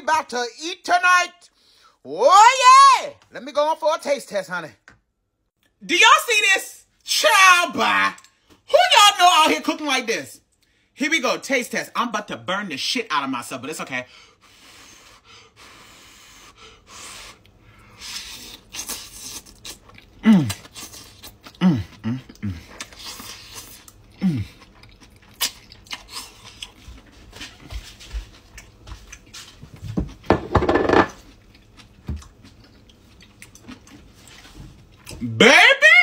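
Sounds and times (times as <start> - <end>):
man slurping and chewing noodles: 14.3 - 30.3, 31.1 - 35.3.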